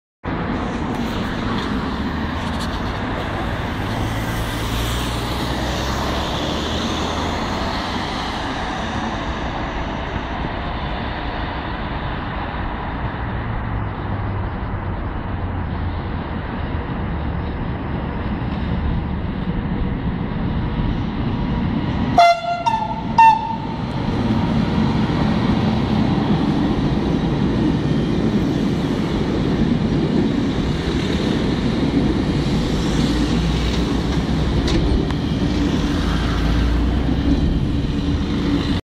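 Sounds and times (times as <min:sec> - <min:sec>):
road traffic: 0:00.2 - 0:38.8
locomotive horn blasts: 0:22.2 - 0:23.9.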